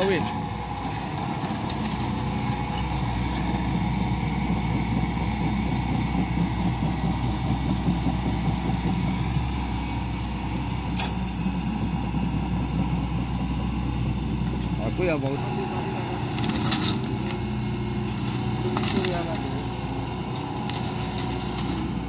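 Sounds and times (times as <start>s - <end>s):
mulcher head grinding wood: 0.0s - 10.0s, 14.5s - 22.0s
excavator diesel engine under load: 0.0s - 22.0s.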